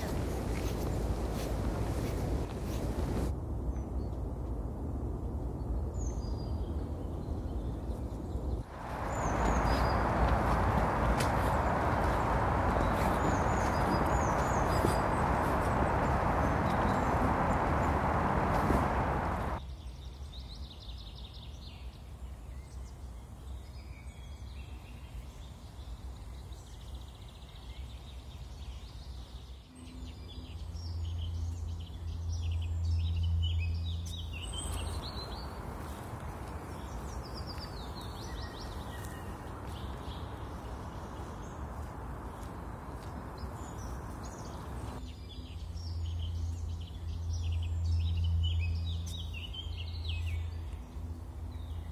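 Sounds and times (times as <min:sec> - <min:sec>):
small birds chirping: 0:06.0 - 0:51.9
low hum: 0:08.7 - 0:19.6
steady rushing noise: 0:08.7 - 0:19.6.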